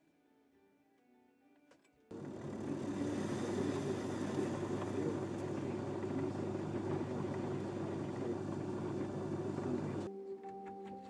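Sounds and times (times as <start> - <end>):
metal lathe running: 2.1 - 10.1.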